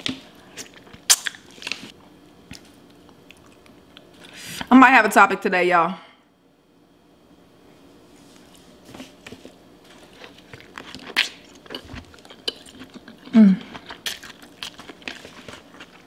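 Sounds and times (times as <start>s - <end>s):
person chewing food: 8.4s - 16.0s
person humming: 13.3s - 13.7s.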